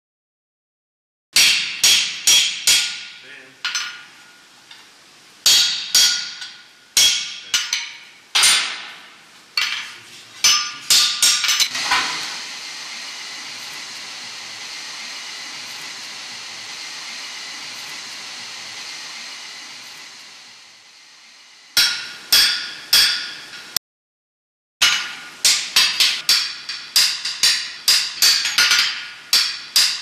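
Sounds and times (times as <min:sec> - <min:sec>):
hammer striking punch on iron: 0:01.4 - 0:04.0, 0:05.4 - 0:09.8, 0:10.4 - 0:12.2, 0:21.8 - 0:23.6, 0:24.8 - 0:30.0
forge fire hissing: 0:11.7 - 0:21.4.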